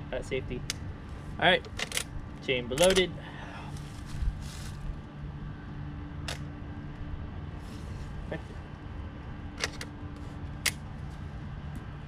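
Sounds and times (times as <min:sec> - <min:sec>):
rifle lever metallic clicks: 0:02.8 - 0:03.0.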